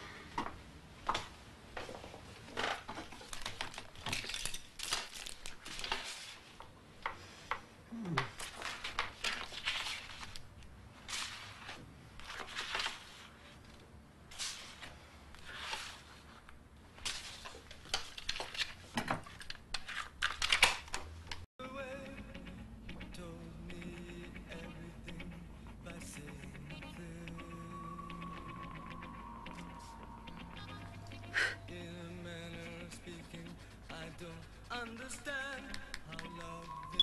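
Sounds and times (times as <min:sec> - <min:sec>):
paper shuffling: 0:02.9 - 0:06.6, 0:08.2 - 0:13.6.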